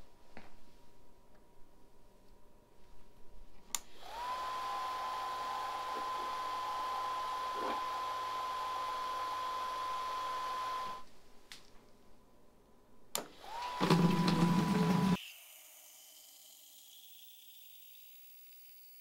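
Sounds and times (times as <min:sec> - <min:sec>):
pump motor whining: 0:04.0 - 0:11.0, 0:13.3 - 0:15.2.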